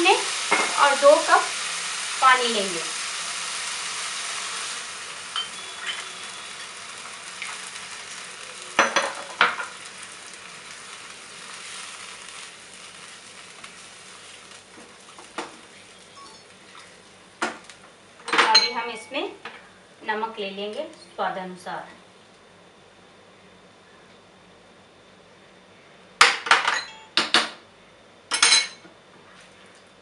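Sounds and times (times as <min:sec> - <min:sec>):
rice sizzling in hot oil: 0:00.0 - 0:18.2.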